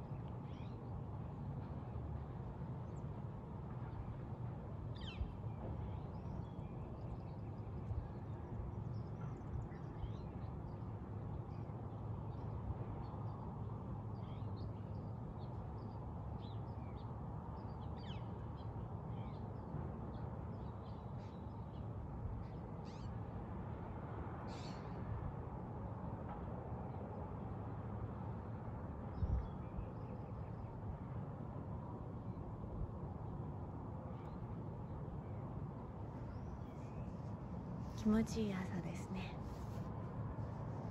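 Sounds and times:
low outdoor rumble: 27.6 - 40.9.

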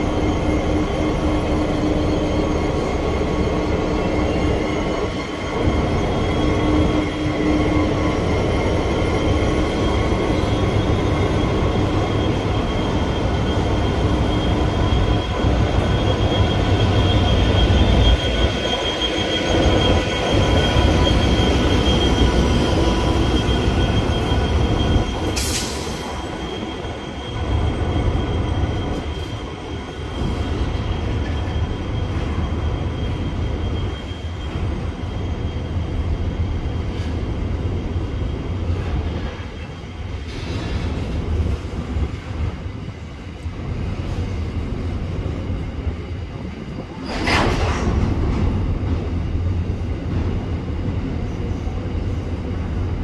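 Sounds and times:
high-pitched wheel squeals: 0.0 - 41.5
diesel locomotive engine drone: 0.0 - 53.0.

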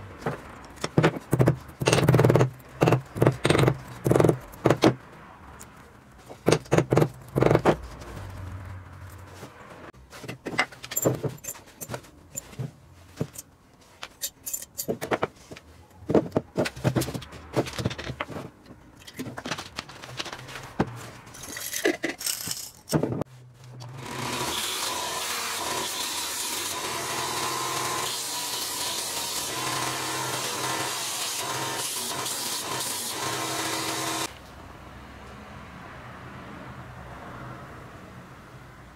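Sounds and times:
small metal parts clinking: 10.6 - 12.6, 13.2 - 15.2, 21.3 - 23.0
bench grinder running: 24.0 - 34.3.

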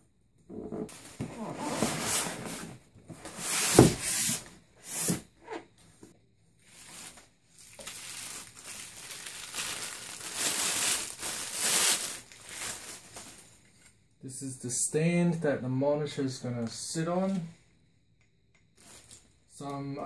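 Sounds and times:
plastic bags crinkling: 6.6 - 13.8.

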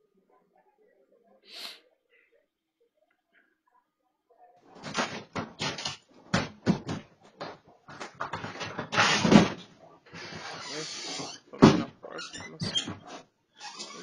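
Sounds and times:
door knocking and rattling: 4.8 - 10.6.

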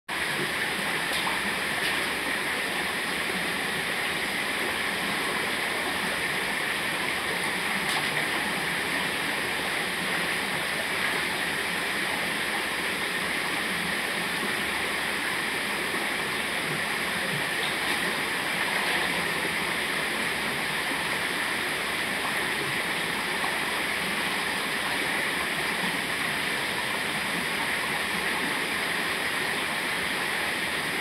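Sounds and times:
stream splashing over cascade: 0.1 - 31.0.

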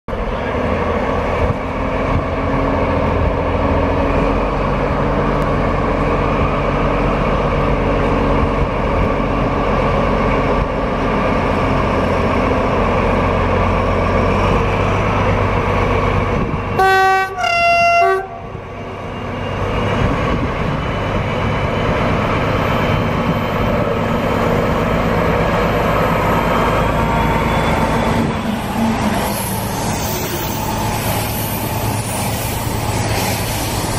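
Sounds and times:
diesel locomotive running under load: 0.1 - 33.9
locomotive horn blasts: 16.8 - 18.5.

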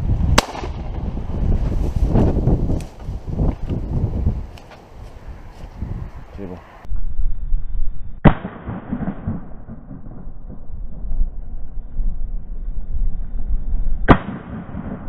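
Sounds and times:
wind rumbling on microphone: 0.0 - 15.0
shotgun shots: 0.4 - 0.9, 8.2 - 10.7, 14.1 - 15.0.

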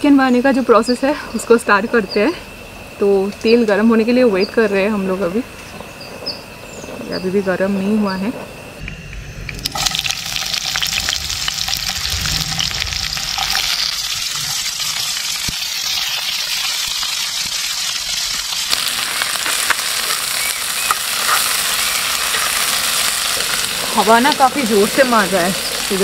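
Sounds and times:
food sizzling in hot oil: 9.6 - 26.0.

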